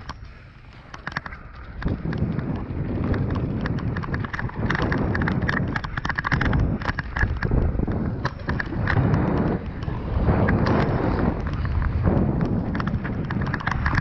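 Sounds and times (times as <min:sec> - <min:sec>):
bike rattling: 0:00.0 - 0:14.0
wind on microphone: 0:00.0 - 0:14.0.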